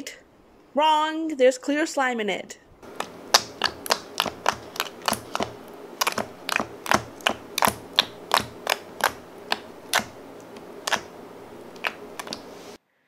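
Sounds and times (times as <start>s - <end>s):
sticky slime clicks and pops: 3.0s - 11.1s.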